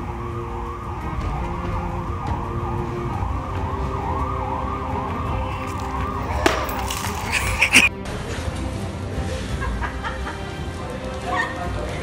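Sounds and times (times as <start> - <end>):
siren wailing: 0.0 - 7.9.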